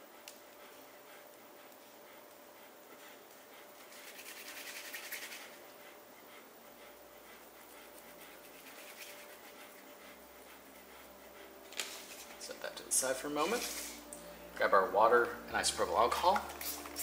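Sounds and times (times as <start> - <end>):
heavy rasping breathing: 5.2 - 14.6.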